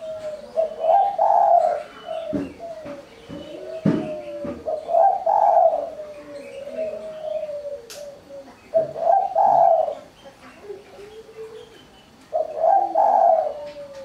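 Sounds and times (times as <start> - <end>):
dove cooing: 0.0 - 14.0
faint click: 7.9 - 8.1.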